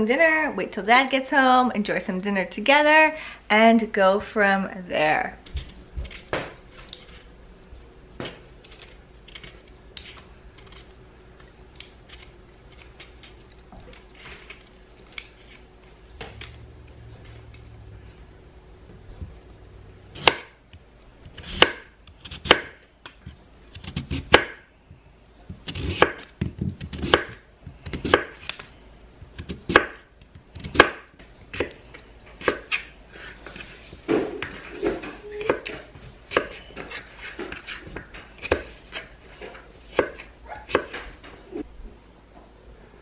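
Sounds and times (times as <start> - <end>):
knife chopping on cutting board: 21.3 - 22.8, 25.6 - 28.5, 30.6 - 31.8, 32.4 - 32.8, 34.1 - 41.0.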